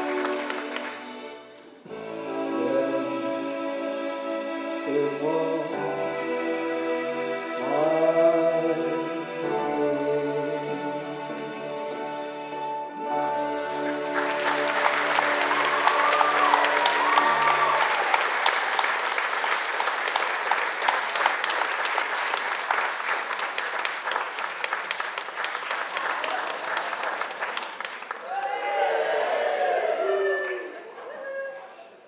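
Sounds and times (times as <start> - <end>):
audience applauding: 0.0 - 2.3, 13.6 - 31.8.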